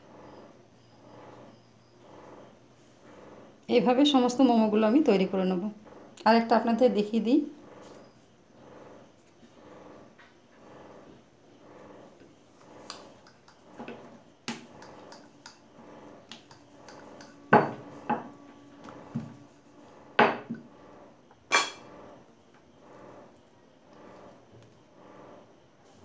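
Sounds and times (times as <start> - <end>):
utensils clinking against dishes: 14.7 - 15.6, 21.5 - 21.9.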